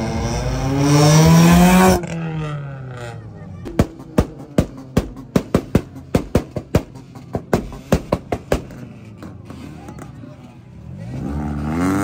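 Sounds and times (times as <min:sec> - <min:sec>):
exhaust banging and popping: 0:03.6 - 0:10.2.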